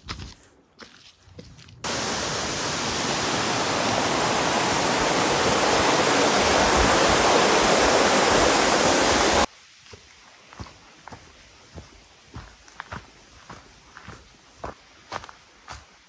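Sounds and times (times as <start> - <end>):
stream water rushing: 1.8 - 9.5.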